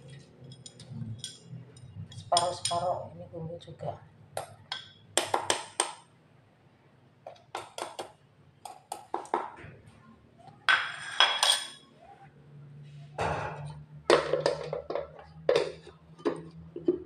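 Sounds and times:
metal spoon clinking on bowl: 0.4s - 2.9s, 10.7s - 11.8s.

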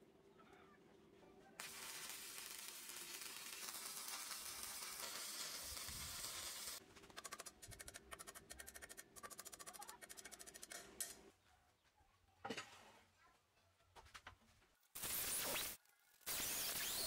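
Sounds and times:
welding arc crackling: 1.6s - 6.8s, 15.0s - 17.0s.

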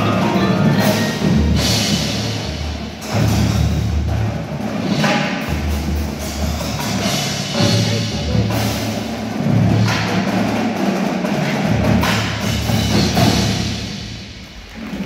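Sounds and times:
marimbas and vibraphones: 0.0s - 3.5s
marching drums: 0.0s - 15.0s.

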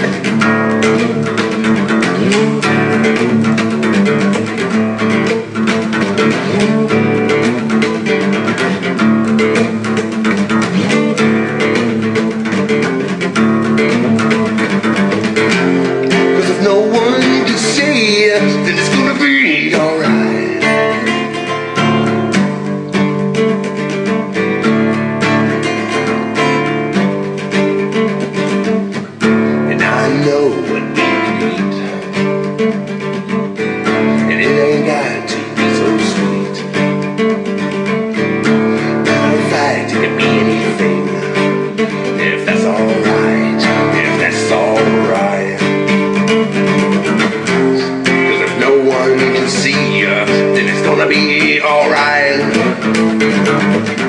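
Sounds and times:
acoustic guitar strumming: 0.0s - 54.0s.

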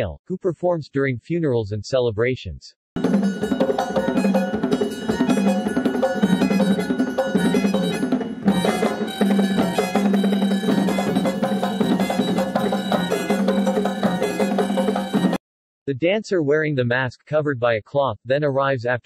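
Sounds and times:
fast percussion music: 3.0s - 15.4s.

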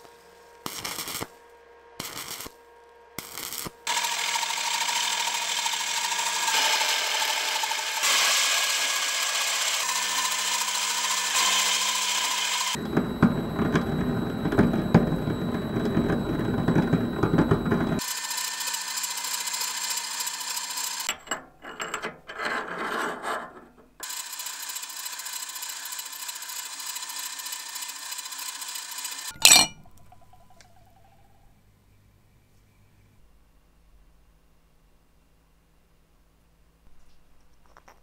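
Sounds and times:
lathe cutting metal crackle: 2.0s - 2.5s, 3.2s - 21.1s, 24.0s - 29.4s
file rasping on spinning shaft: 3.9s - 18.1s
lathe running with held tone: 3.9s - 21.1s, 24.0s - 29.4s.

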